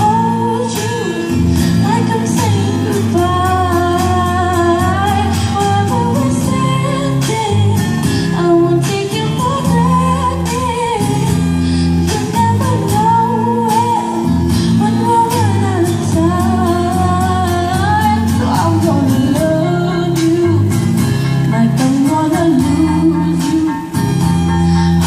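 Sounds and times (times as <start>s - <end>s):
girl singing a pop song: 0.0s - 25.0s
instrumental accompaniment: 0.0s - 25.0s.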